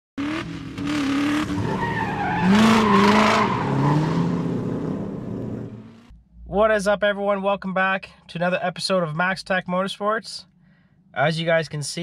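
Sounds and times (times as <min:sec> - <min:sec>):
race car engines revving: 0:00.2 - 0:06.1.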